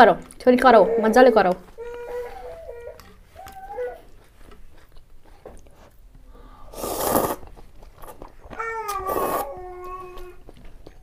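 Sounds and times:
loud noodle slurp: 6.7 - 8.2, 8.9 - 9.5.

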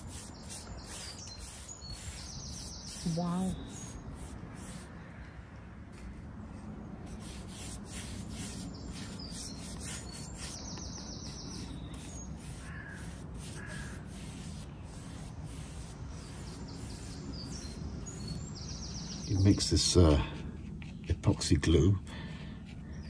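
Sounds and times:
paintbrush brushing on wood: 0.0 - 5.0, 5.9 - 21.8
bird calling: 8.4 - 14.4.

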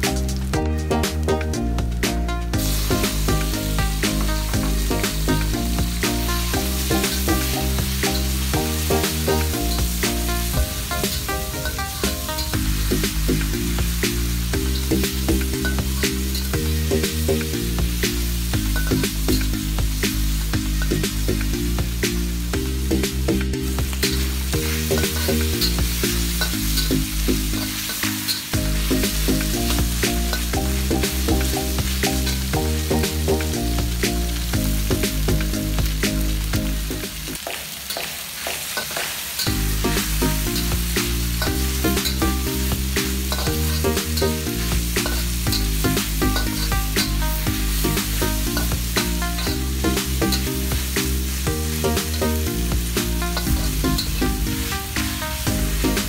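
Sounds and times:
background music with bass line: 0.0 - 37.4, 39.5 - 56.0
food sizzling in a wok: 0.0 - 56.0
metal spatula scraping a pan: 24.0 - 32.4, 41.4 - 47.1.

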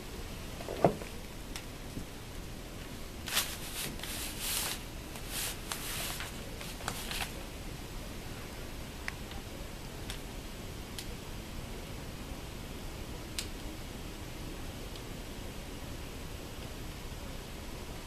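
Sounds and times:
paper rustling and crinkling: 3.2 - 7.4.

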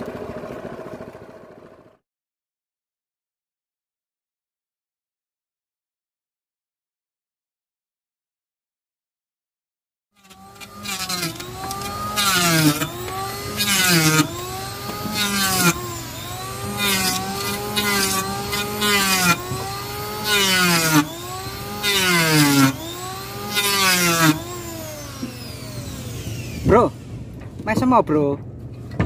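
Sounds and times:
saw rasping through wood: 10.2 - 27.0
power tool motor whining: 10.2 - 27.6.

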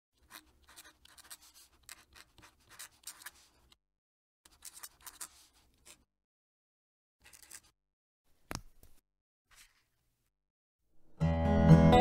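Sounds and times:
fountain pen writing on paper: 0.2 - 3.5, 4.5 - 6.0.

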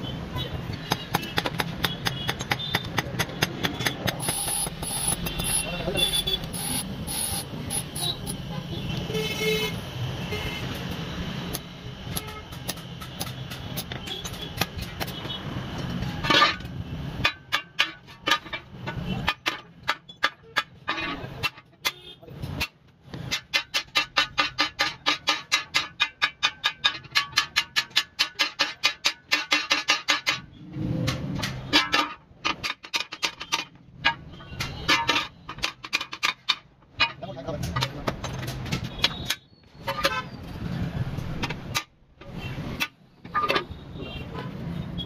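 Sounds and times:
vehicle horn: 5.0 - 10.7.

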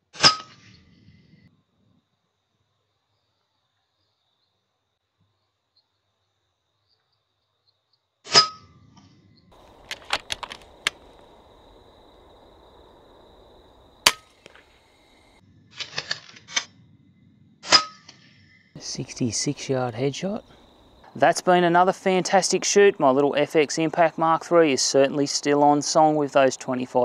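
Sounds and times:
light clicks: 9.7 - 11.3
air rifle shots: 14.0 - 14.8.

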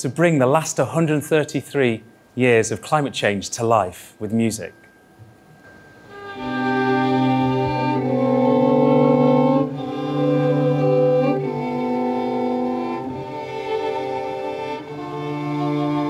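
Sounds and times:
string quartet bowed chords: 5.6 - 16.0.

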